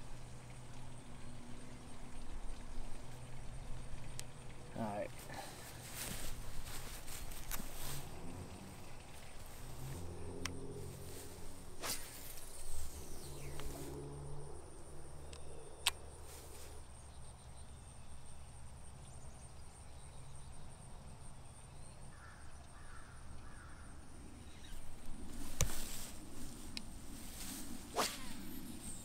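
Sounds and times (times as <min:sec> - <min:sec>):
low rumble: 0:05.1 - 0:16.2
high-pitched insect drone: 0:09.7 - 0:16.4.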